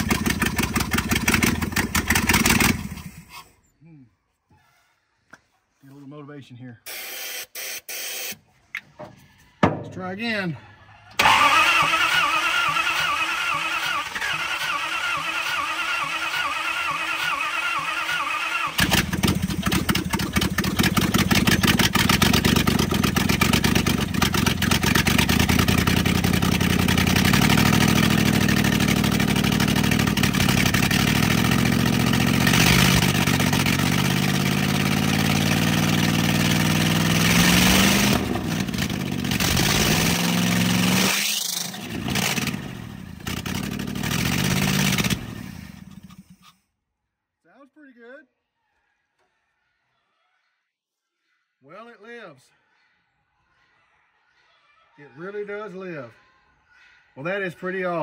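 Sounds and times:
starter cranking engine: 0.0 - 3.3, 11.2 - 35.0
truck engine revving: 11.2 - 45.9.

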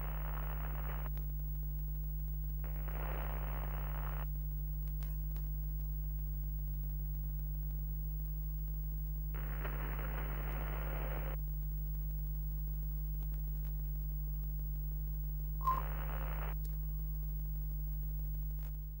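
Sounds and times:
low electrical hum: 0.0 - 19.0
static hiss: 0.0 - 19.0
brief beep: 15.6 - 16.0.

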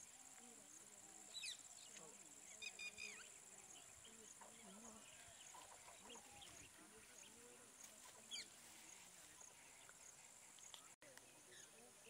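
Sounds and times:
bird chirps: 1.2 - 11.9.

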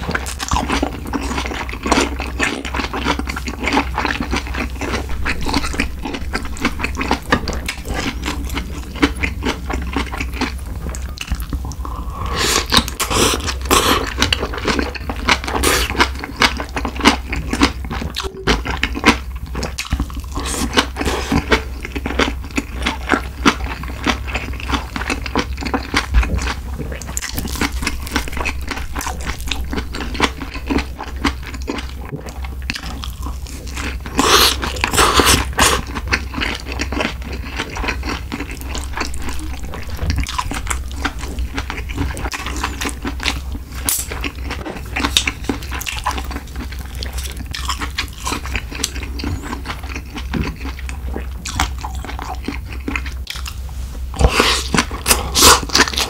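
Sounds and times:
person chewing: 0.0 - 56.0.

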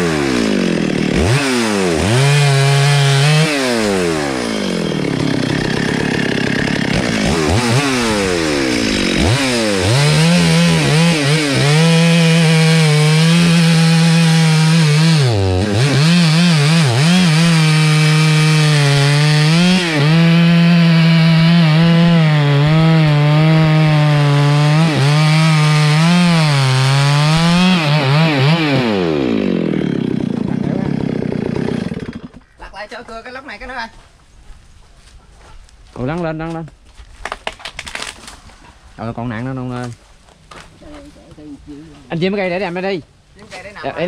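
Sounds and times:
chainsaw cutting log: 0.0 - 32.5, 37.2 - 38.4.

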